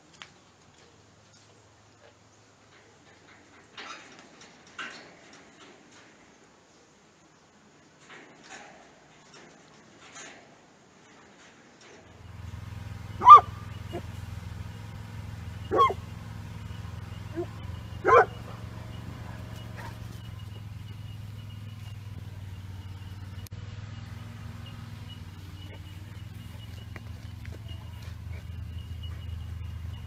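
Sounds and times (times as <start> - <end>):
steady low hum: 12.1 - 30.0
dog barking: 13.1 - 14.1, 15.6 - 16.1, 17.3 - 20.3.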